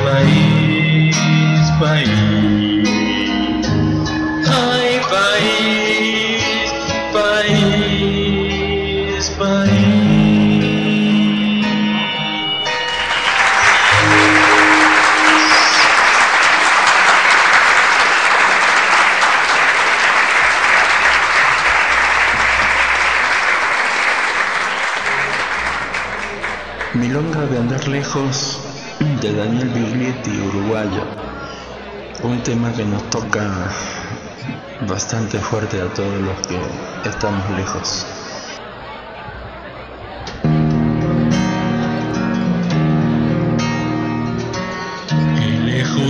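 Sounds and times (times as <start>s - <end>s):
person singing: 0.0s - 13.0s, 13.8s - 16.2s, 45.1s - 46.0s
guitar playing: 7.4s - 16.6s, 25.1s - 28.1s, 40.2s - 46.0s
audience applause: 12.8s - 28.1s.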